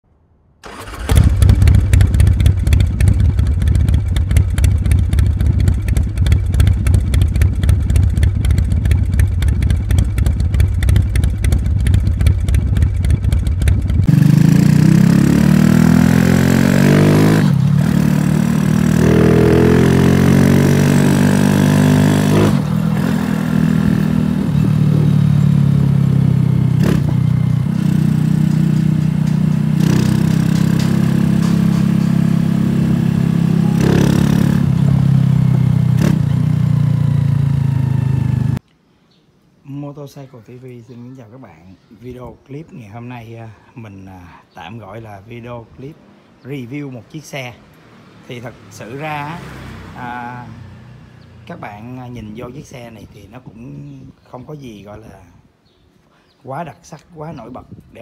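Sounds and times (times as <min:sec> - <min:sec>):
motorcycle engine: 0:00.6 - 0:38.6, 0:47.8 - 0:51.4.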